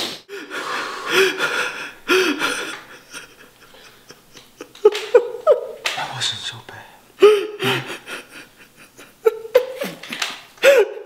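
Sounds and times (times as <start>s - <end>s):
man gasping and breathing hard: 0.3s - 4.1s, 6.8s - 8.5s, 10.6s - 11.0s.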